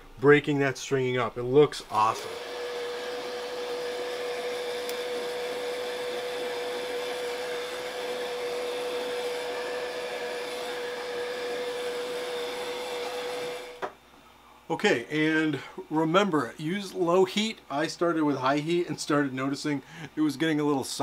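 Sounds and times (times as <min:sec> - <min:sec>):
heat gun blowing with whine: 0:01.8 - 0:13.9.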